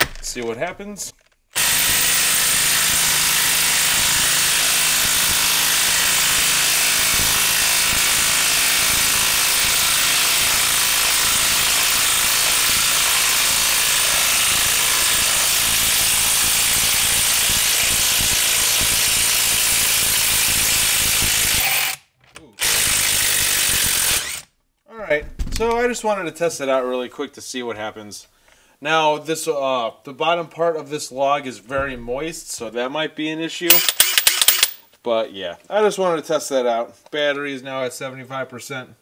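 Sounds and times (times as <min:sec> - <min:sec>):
impact wrench hammering: 0:33.7 - 0:34.9.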